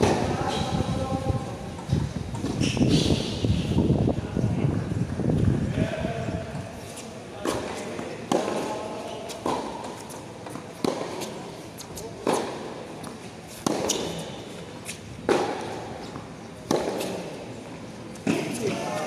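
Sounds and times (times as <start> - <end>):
tennis ball struck by rackets: 7.4 - 11.4, 12.2 - 14.3, 15.2 - 15.8, 16.6 - 17.3.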